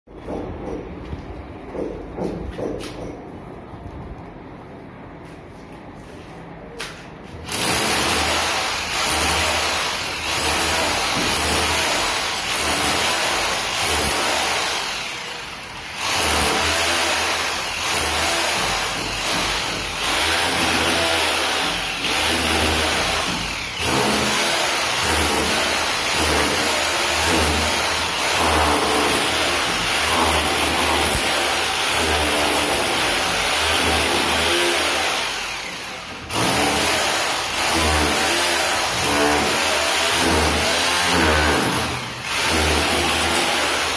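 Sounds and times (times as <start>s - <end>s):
hammer drill into brick wall: 7.4s - 43.9s.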